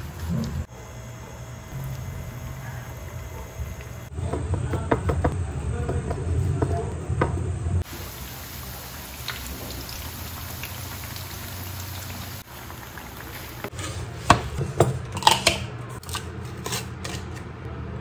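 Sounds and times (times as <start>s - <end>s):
oil sizzling: 7.4s - 13.8s
batter crackling in hot oil: 7.8s - 13.7s.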